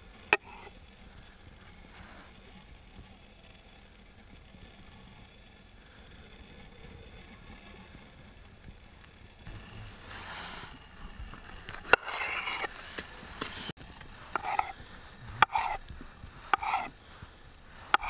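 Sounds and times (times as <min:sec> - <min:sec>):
knife cutting through tomato: 0:14.4 - 0:14.8, 0:16.5 - 0:16.9.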